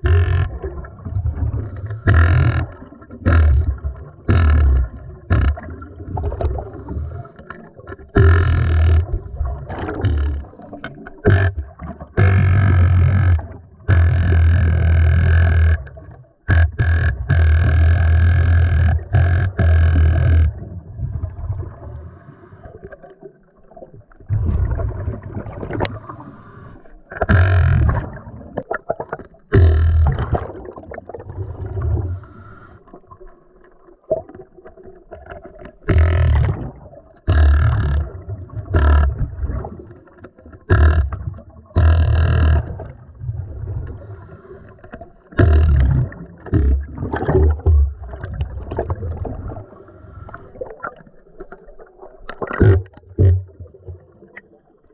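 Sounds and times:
quiet gurgling: 0.0 - 54.9
air bubbling underwater: 29.6 - 32.3, 45.4 - 49.7.

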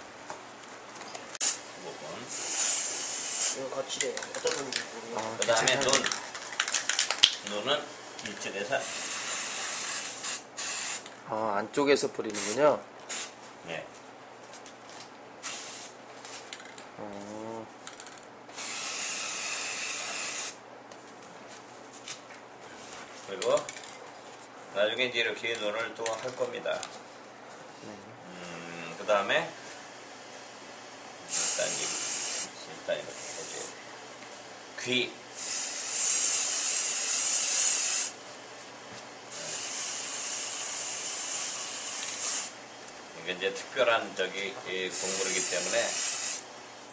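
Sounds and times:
aerosol spray can hissing: 2.3 - 3.6, 8.8 - 11.1, 12.3 - 13.4, 15.4 - 15.9, 18.6 - 20.6, 31.3 - 32.5, 35.4 - 38.2, 39.3 - 42.6, 44.9 - 46.4.

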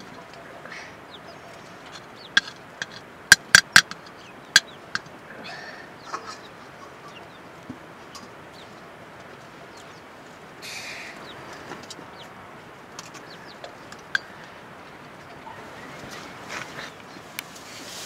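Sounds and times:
chicken clucking: 0.0 - 3.0, 3.8 - 10.0.

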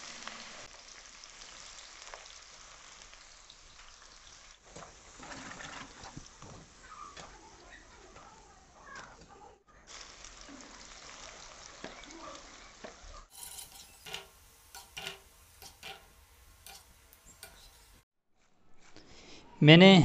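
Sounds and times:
okra sizzling in oil: 0.0 - 8.2, 9.7 - 18.1
spoon clicking against pan: 13.3 - 18.0.

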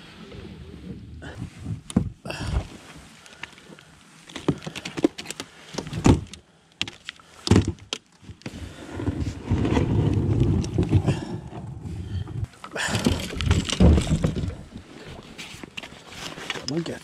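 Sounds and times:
low rumble: 9.0 - 12.5
kayak knocks and clunks: 12.8 - 14.9.

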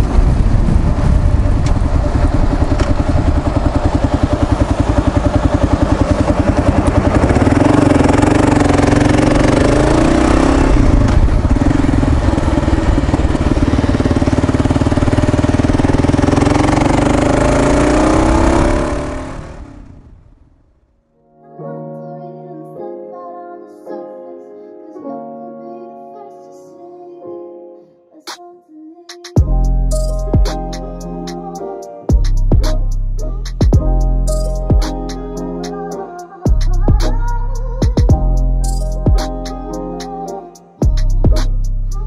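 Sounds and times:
motorcycle engine running: 0.0 - 20.4, 32.1 - 35.8, 36.5 - 39.4, 40.8 - 42.0.

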